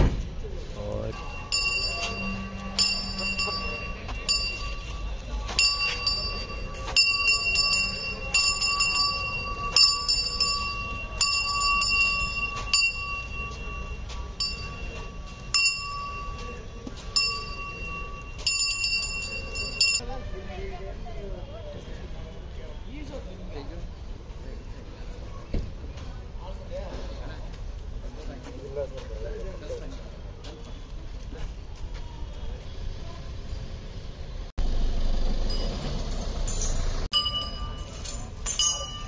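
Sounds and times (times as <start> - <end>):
elephant bell ringing: 1.1 - 20.3, 35.2 - 39.0.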